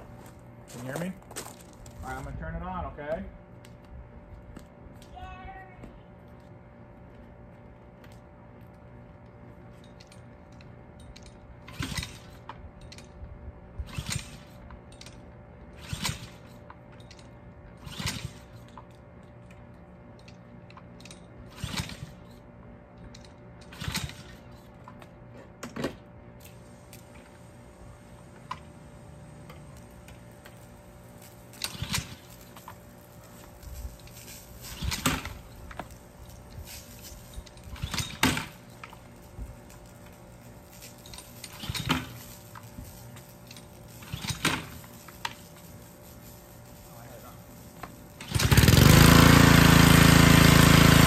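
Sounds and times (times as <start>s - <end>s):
pressure washer starting attempts: 31.2s - 36.0s, 36.8s - 39.1s, 40.8s - 51.0s.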